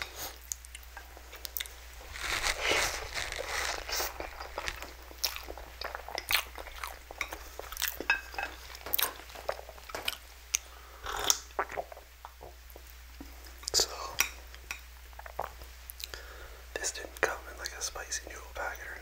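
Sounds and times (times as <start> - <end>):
wet chewing: 0.4 - 12.5
noodle slurping: 1.6 - 8.0.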